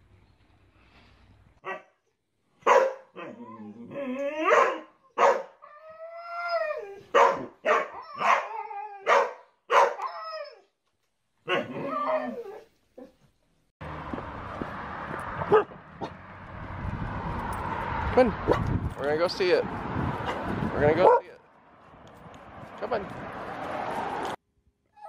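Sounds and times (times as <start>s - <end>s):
dogs barking: 2.6s - 3.4s, 4.4s - 5.6s, 7.1s - 10.0s, 11.4s - 11.9s, 15.4s - 16.2s, 21.0s - 21.4s.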